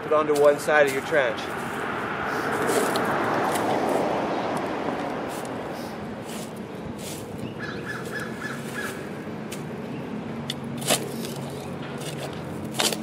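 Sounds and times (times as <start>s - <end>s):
shovel cutting into sod: 2.4s - 3.7s, 5.3s - 7.3s, 10.8s - 13.0s.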